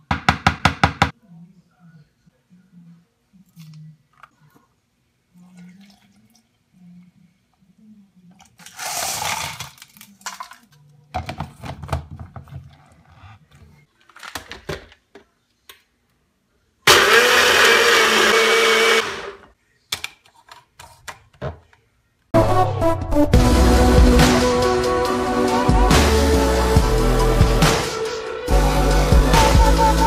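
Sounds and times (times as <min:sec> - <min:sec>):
blender motor: 0:16.9 - 0:19.4.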